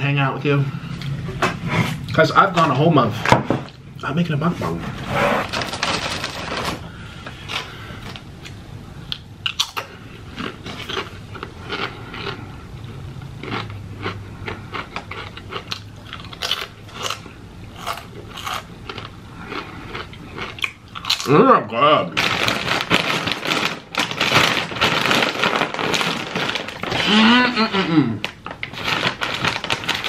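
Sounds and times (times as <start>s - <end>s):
plastic chip bag crinkling: 5.4s - 8.2s, 22.1s - 30.0s
chips being crunched and chewed: 9.4s - 21.4s, 22.1s - 30.0s.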